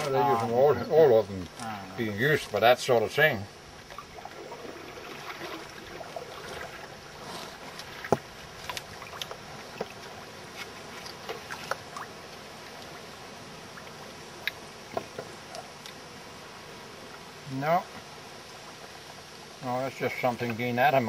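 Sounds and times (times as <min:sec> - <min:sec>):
water lapping against canoe: 0:03.8 - 0:16.1.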